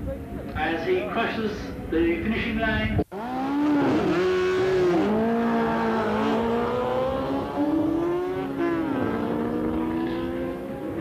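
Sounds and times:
motorcycles accelerating hard: 3.1 - 11.0.

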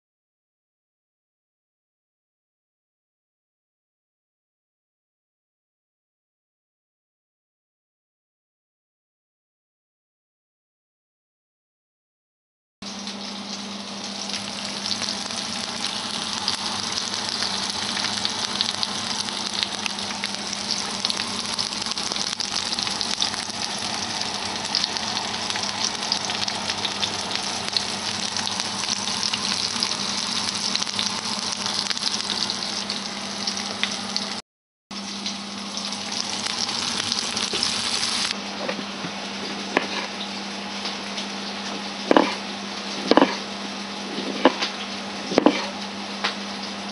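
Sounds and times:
vegetables sizzling in hot oil: 12.9 - 34.4, 35.0 - 38.4.

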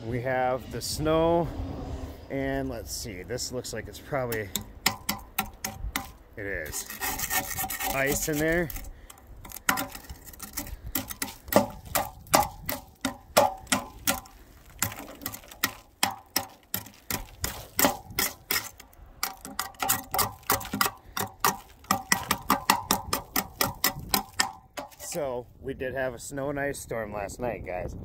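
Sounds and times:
metal ruler scraping ice off metal: 4.3 - 25.2.

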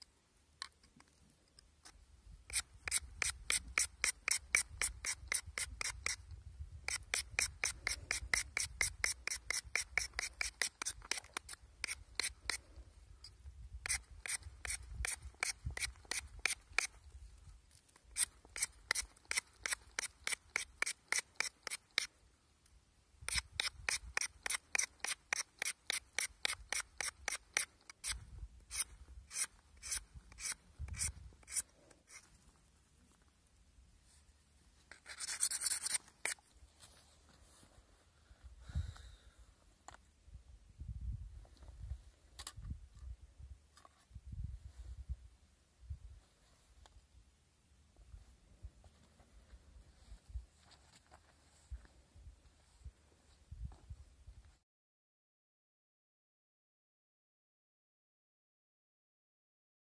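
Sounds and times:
rasping strokes against a bar: 2.5 - 6.2, 6.9 - 12.6, 13.8 - 16.9, 18.2 - 22.1, 23.3 - 32.3, 34.9 - 36.4.

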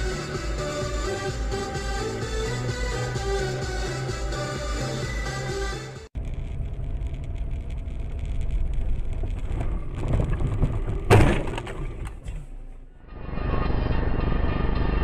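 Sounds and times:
music: 0.0 - 6.1
car road and engine rumble: 0.0 - 15.0.

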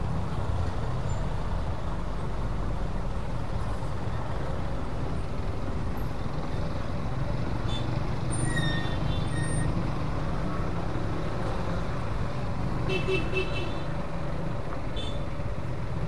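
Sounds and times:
traffic crossing rails: 0.0 - 16.0
faint high squeaks: 7.7 - 9.8.

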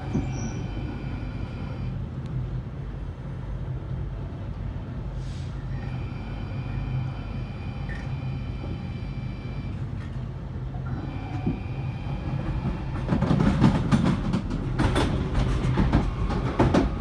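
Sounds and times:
train wheels rumbling on track: 0.0 - 17.0
short hiss: 5.2 - 5.6.

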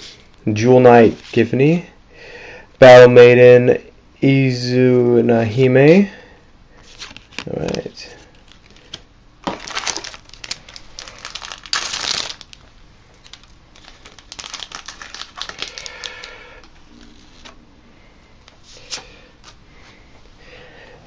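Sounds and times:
foil wrappers crinkling: 6.9 - 17.6.

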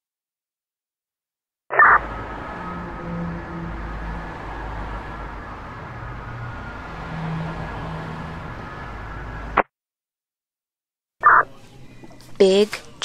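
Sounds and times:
road noise: 1.7 - 9.6, 11.2 - 13.0
truck engine drone: 1.8 - 9.6.

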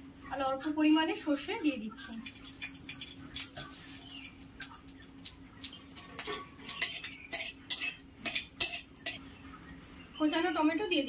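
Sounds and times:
mustard seeds popping in hot oil: 2.0 - 9.2.

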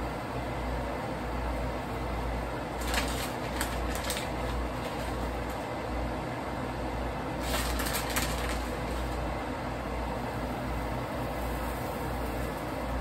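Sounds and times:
range hood hiss and hum: 0.0 - 13.0
plastic bag crinkling: 2.7 - 5.7, 7.4 - 9.3.

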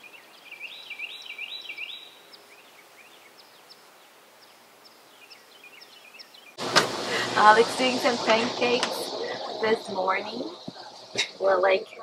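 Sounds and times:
small birds chirping: 0.0 - 6.6
faint steady hiss: 0.0 - 12.0.

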